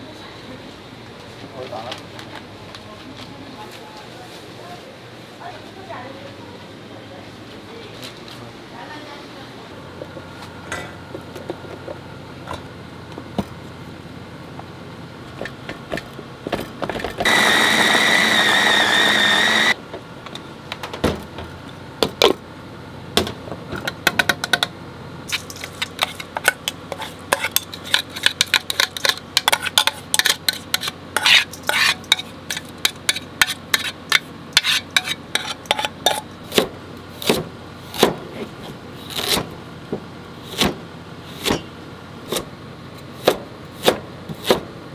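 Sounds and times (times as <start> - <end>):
electric food chopper whining: 17.2 - 19.8
knife chopping on plastic board: 40.5 - 40.8, 43.2 - 44.7.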